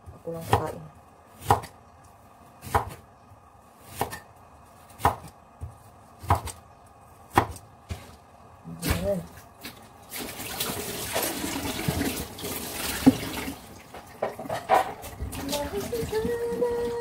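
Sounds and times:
cleaver chopping sweet potato: 0:01.4 - 0:01.8, 0:02.6 - 0:03.0, 0:04.9 - 0:06.6, 0:07.3 - 0:07.6.

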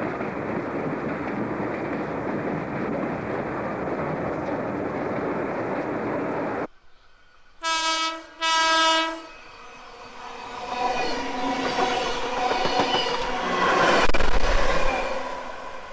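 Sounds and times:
train passing with wheel clatter: 0:00.0 - 0:15.9
train horn blasts: 0:07.6 - 0:09.4.

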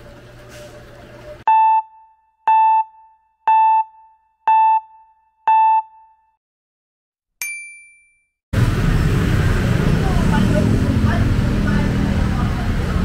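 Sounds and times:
electronic countdown beeps: 0:01.5 - 0:06.3
higher-pitched ding: 0:07.4 - 0:08.3.

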